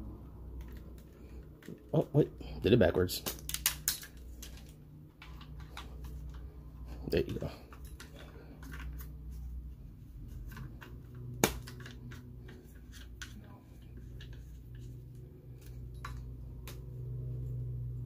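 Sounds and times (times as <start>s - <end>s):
plastic parts clicking and rattling: 0.6s - 2.1s, 3.1s - 9.5s, 10.3s - 16.8s.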